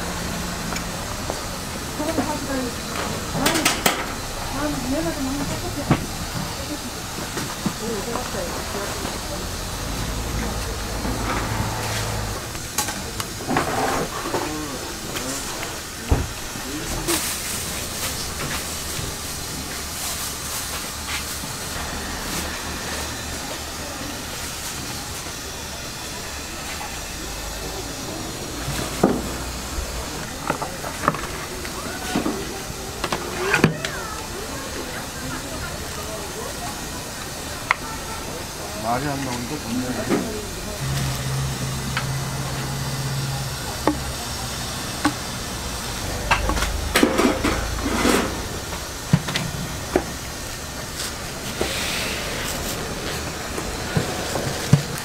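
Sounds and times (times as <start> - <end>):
steam hissing: 0.0 - 55.0.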